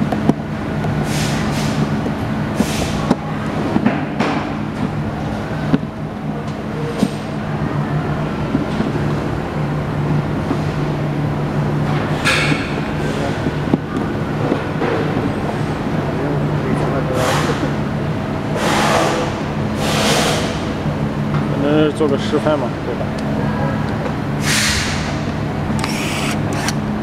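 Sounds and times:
low machine hum: 0.0s - 27.0s
pliers clicking and scraping: 25.8s - 26.8s.

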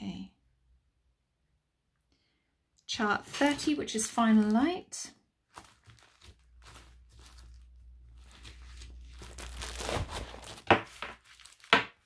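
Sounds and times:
plastic sleeves rustling: 2.9s - 12.0s.

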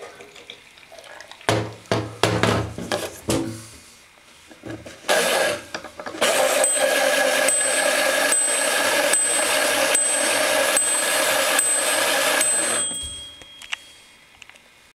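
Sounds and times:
toy washing machine motor whirring: 5.0s - 13.5s
bell ringing: 6.4s - 14.2s.

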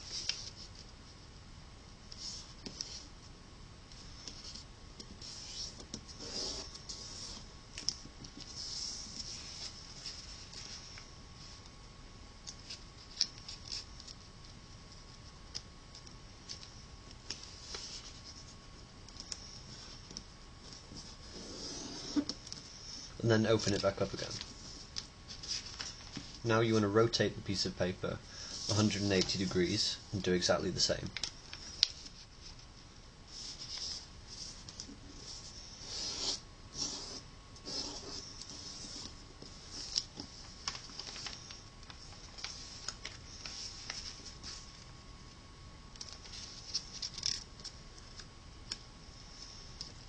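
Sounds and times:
paper folding rustles: 0.0s - 0.9s, 4.0s - 11.6s, 12.5s - 14.3s, 14.9s - 18.5s, 23.4s - 26.5s, 28.4s - 36.2s, 37.6s - 44.8s, 46.0s - 50.0s
paper crinkling and rustling: 23.4s - 26.4s, 30.8s - 32.7s, 37.8s - 44.8s, 46.0s - 48.8s.

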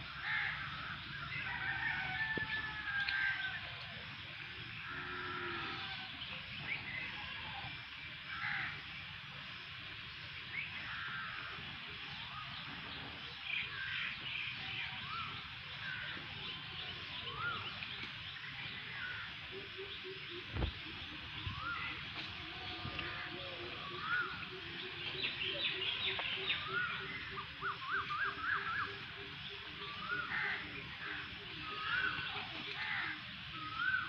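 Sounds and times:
birds chirping: 10.4s - 34.0s.

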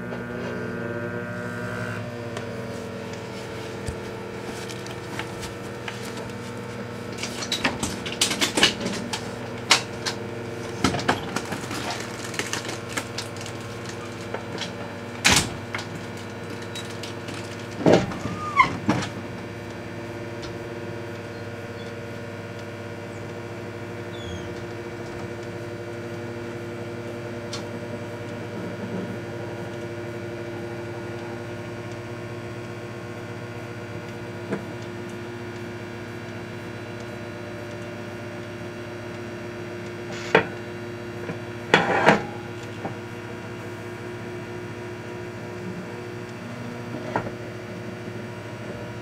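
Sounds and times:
microwave oven humming: 0.0s - 49.0s
sharp clicks and crackles: 10.8s - 17.8s.

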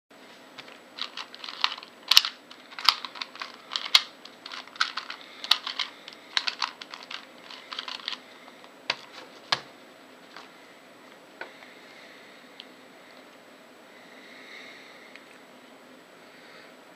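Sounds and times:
puzzle cube plastic clicks: 0.6s - 8.2s.

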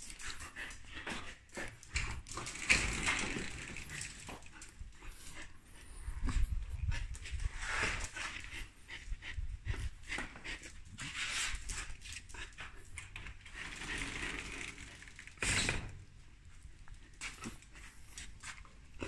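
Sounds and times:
dog panting: 0.0s - 2.3s, 3.5s - 14.1s.

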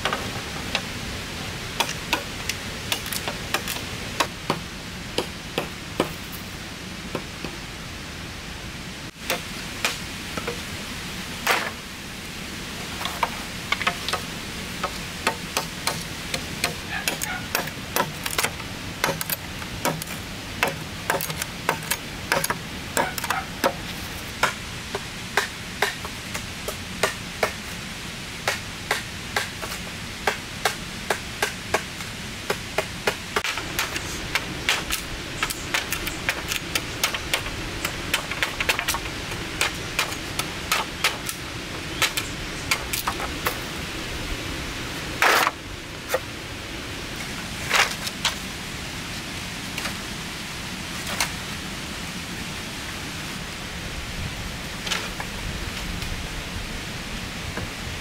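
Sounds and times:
background hiss: 0.0s - 58.0s.

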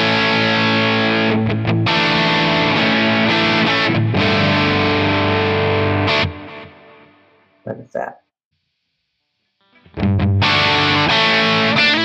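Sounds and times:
distorted electric guitar chords: 0.0s - 7.0s, 9.6s - 12.0s.

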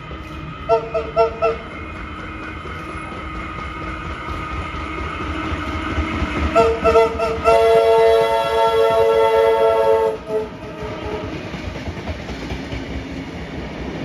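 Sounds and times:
train rumbling on rails: 0.0s - 14.0s
train whistle toots: 0.7s - 1.7s, 6.5s - 11.4s.

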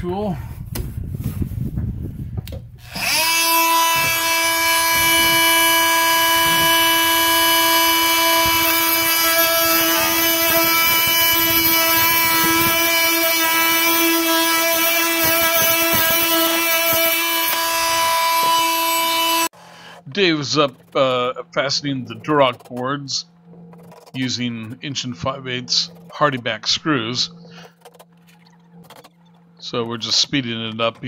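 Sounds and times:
oscillating multi-tool buzzing: 2.8s - 19.6s, 22.2s - 24.3s, 25.2s - 29.8s.

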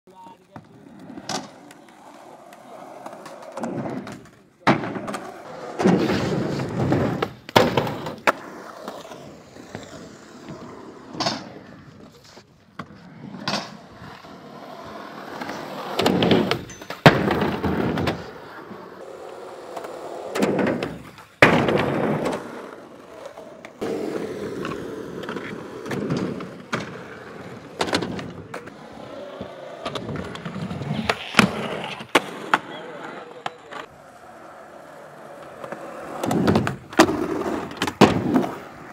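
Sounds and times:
skateboard clacking on ground: 0.1s - 38.9s
skateboard wheels rolling on concrete: 0.1s - 38.9s.

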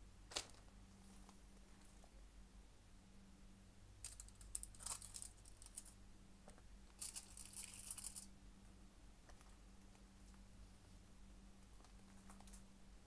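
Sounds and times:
aluminium foil crinkling: 4.1s - 6.0s, 6.9s - 8.3s.

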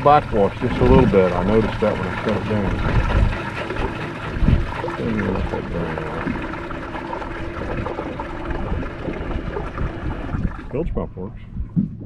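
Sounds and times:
water splashing: 0.0s - 11.0s
bilge pump humming: 0.0s - 12.0s.

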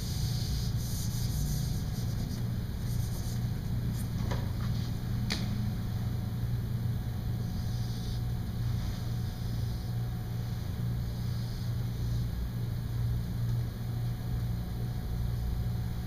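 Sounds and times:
marker scratching on whiteboard: 0.0s - 3.4s
steady low hum: 0.0s - 16.0s.

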